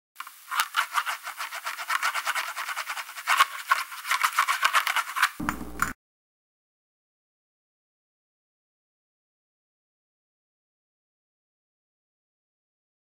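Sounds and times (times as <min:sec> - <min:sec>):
fast rhythmic percussion: 0:05.4 - 0:06.0.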